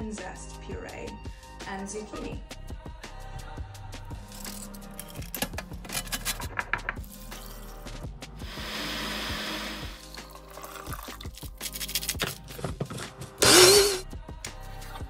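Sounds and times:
background music: 0.0s - 15.0s
blender motor spinning up: 8.4s - 10.0s, 13.4s - 14.0s
water pouring into saucepan: 9.8s - 11.5s.

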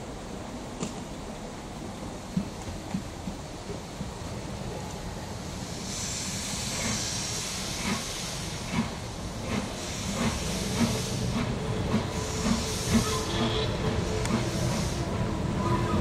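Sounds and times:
steam hissing: 5.2s - 16.0s
steam locomotive exhaust chuffing: 5.6s - 15.4s.

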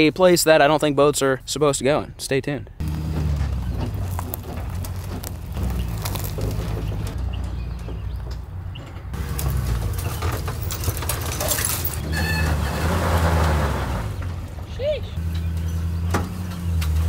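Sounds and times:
truck engine idling: 2.8s - 13.0s
clicks and crackles: 3.8s - 7.2s, 9.2s - 12.0s.

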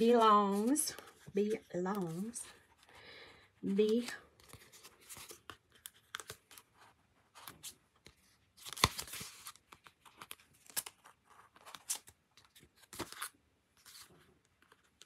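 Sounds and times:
paper rustling: 3.8s - 15.0s.

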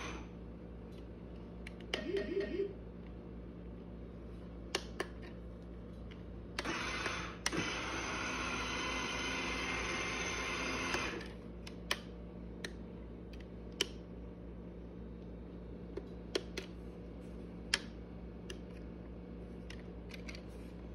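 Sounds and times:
baby swing motor hum: 6.6s - 11.4s.

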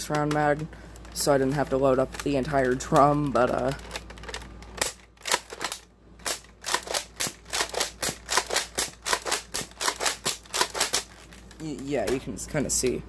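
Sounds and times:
plastic toy blaster clicks: 4.8s - 11.1s.

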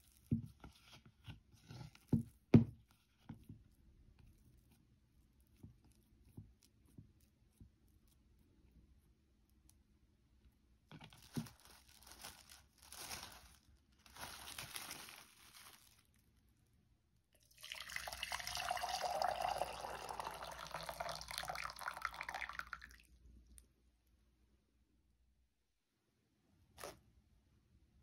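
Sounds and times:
cling film crinkling: 11.1s - 16.2s
water pouring: 17.4s - 23.2s.

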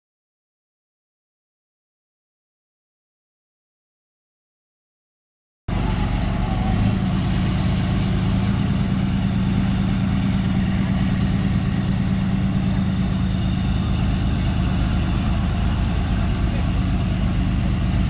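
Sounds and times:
tank diesel engine droning: 5.7s - 18.0s.

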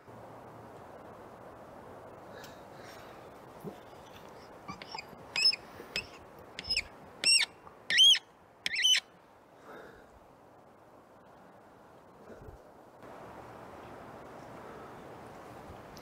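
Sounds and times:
bird calling: 3.7s - 9.1s.

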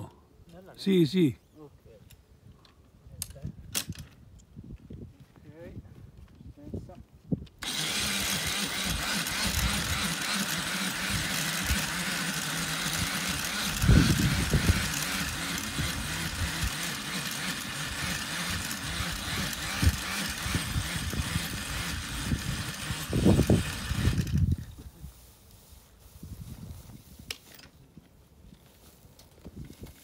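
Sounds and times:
electric tiller churning soil: 7.6s - 24.7s.

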